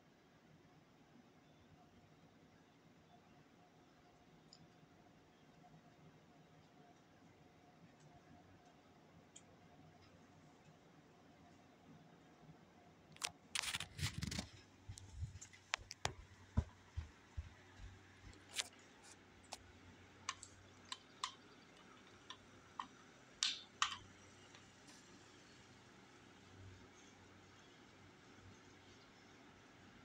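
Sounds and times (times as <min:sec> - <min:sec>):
faint low hum: 0:00.0 - 0:30.0
sharp clicks and knocks: 0:13.2 - 0:18.8, 0:19.5 - 0:24.7.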